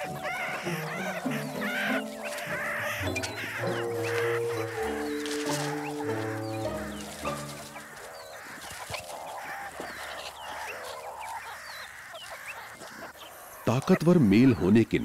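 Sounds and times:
background music: 0.0s - 8.3s
meerkat pups squeaking and chirping: 0.0s - 14.6s.

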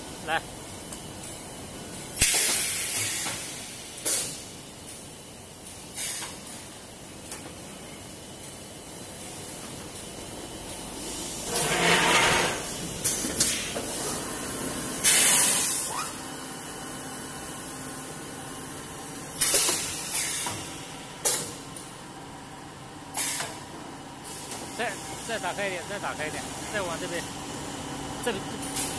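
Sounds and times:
pneumatic cylinder clacks: 19.4s - 20.6s, 21.2s - 21.6s, 23.2s - 23.6s
compressed air hiss bursts: 23.2s - 23.6s.

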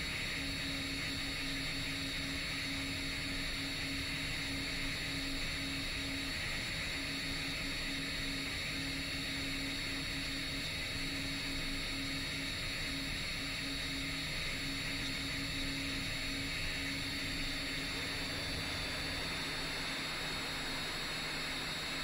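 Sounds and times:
quadcopter motors droning: 0.0s - 22.0s
low hum: 15.9s - 22.0s
steady hiss: 16.6s - 22.0s.

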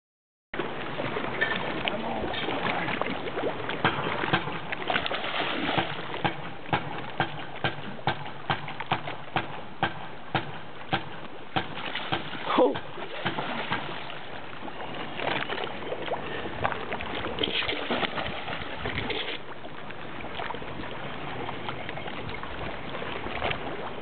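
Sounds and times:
fish thrashing and splashing: 0.6s - 9.6s, 11.1s - 19.6s.

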